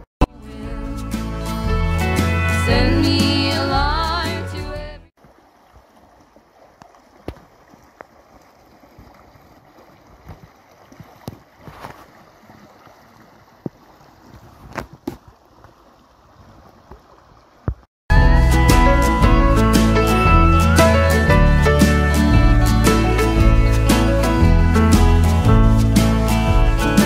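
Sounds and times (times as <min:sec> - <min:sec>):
loud guitar music: 0:00.2 - 0:04.6, 0:18.1 - 0:27.0
stream rushing and gurgling: 0:05.1 - 0:27.0.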